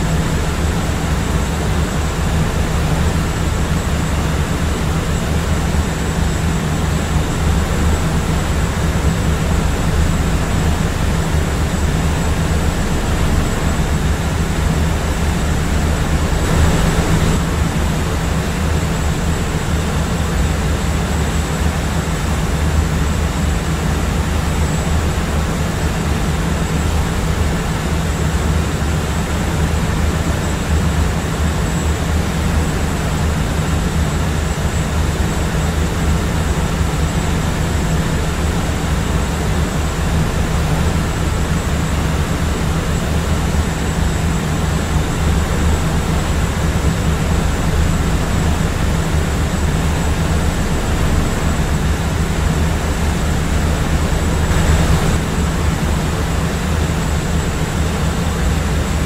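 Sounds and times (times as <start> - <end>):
airplane engine rumble: 0.0 - 23.0, 23.6 - 59.0
faint high whine: 34.2 - 59.0.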